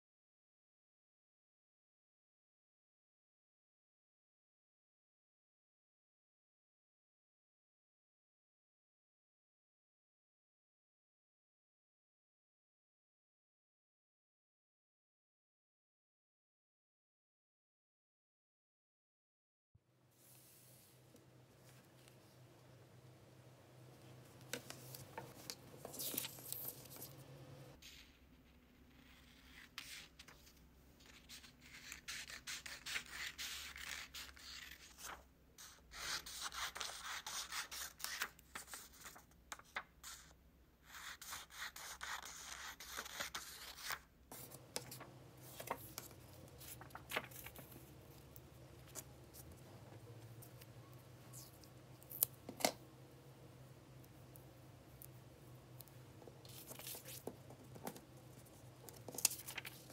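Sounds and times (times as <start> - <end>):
paper sheets rustling: 24.4 - 28.1, 43.0 - 50.6, 56.3 - 59.9
scissors cutting paper: 31.3 - 35.0.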